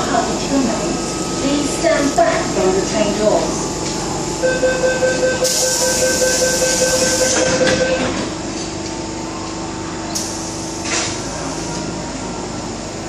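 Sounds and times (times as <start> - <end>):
door-closing warning beeper: 4.4 - 8.3
air hiss of doors: 10.1 - 11.8.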